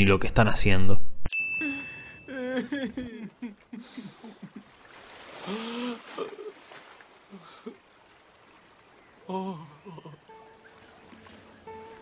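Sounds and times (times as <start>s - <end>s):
cartoon sighing moan: 1.6s - 3.1s, 5.4s - 6.5s, 9.2s - 10.3s.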